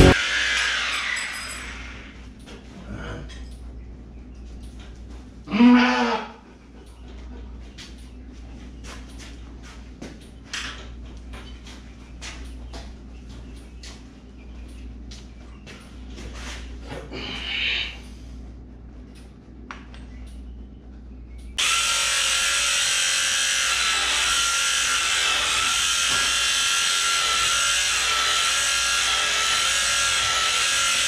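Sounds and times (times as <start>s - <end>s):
electric shearing clippers buzzing: 0.0s - 2.2s, 21.6s - 31.0s.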